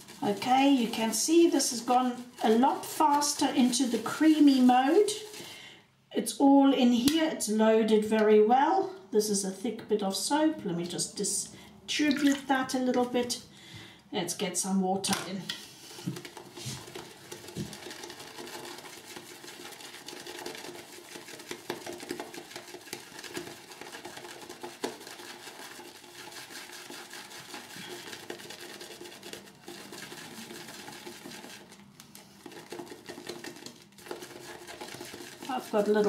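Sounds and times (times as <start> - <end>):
shaving brush swishing lather: 0.0 - 5.4, 15.8 - 36.0.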